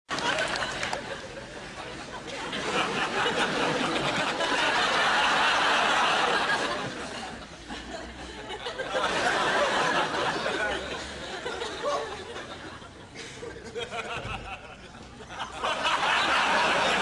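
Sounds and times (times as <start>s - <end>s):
group of people laughing: 0.1s - 17.0s.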